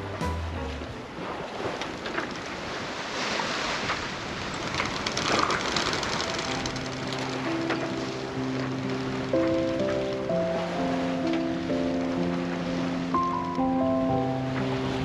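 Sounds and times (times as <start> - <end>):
background music: 0.0 - 1.2, 6.1 - 15.0
water rushing along a boat hull: 0.0 - 15.0.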